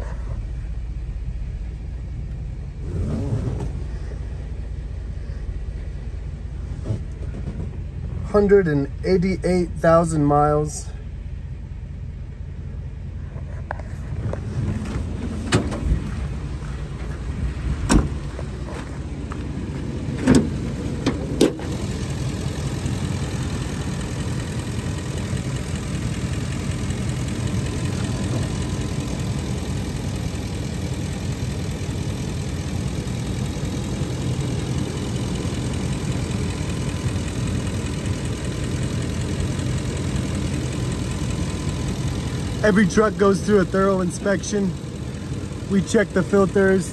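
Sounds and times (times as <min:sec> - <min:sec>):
truck engine idling: 0:00.0 - 0:02.9, 0:03.7 - 0:46.9.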